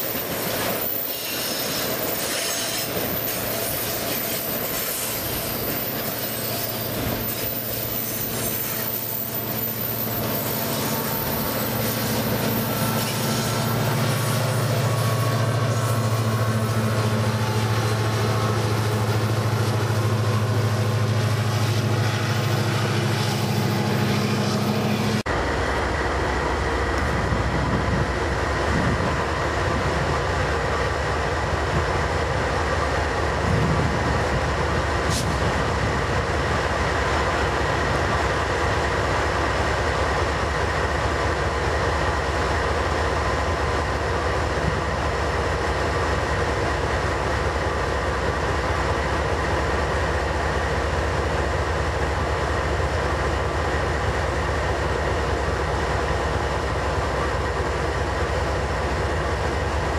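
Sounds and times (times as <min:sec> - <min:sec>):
thin wheel squeal: 0:00.0 - 0:15.1
diesel locomotive engine drone: 0:00.0 - 0:59.9.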